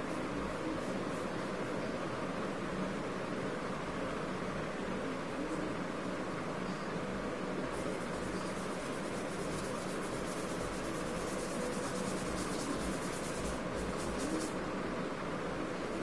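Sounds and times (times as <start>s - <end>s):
steady background hum: 0.0s - 16.0s
paintbrush scrubbing on paper: 7.7s - 14.6s.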